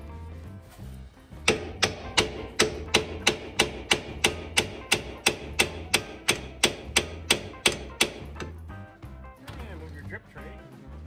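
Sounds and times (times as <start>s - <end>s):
hammer on metal: 1.4s - 8.6s.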